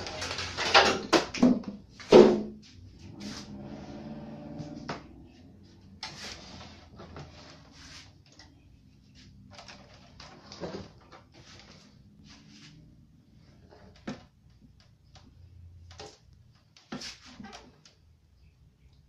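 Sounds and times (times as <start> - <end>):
knocks and clatter on plastic: 0.0 - 2.6.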